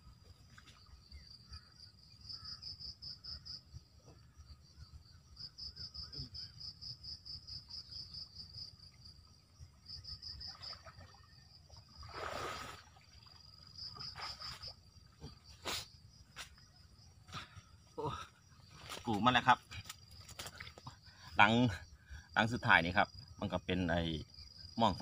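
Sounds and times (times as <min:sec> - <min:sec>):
insect chirping: 0:00.0 - 0:25.0
splash of water wading: 0:10.5 - 0:14.8
sharp splash or knock: 0:12.0 - 0:13.0.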